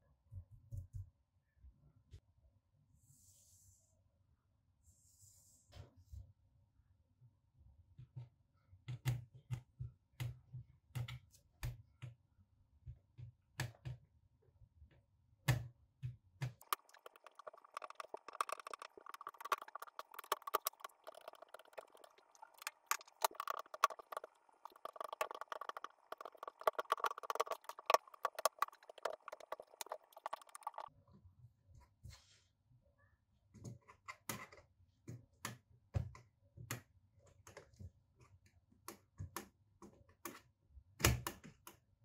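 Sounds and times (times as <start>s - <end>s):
continuous scraping with clicks: 16.6s - 30.9s.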